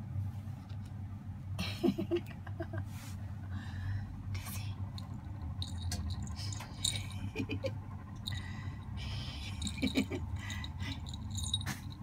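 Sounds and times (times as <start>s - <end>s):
steady low hum: 0.0s - 12.0s
collar bell jingling: 4.9s - 7.4s, 8.2s - 12.0s.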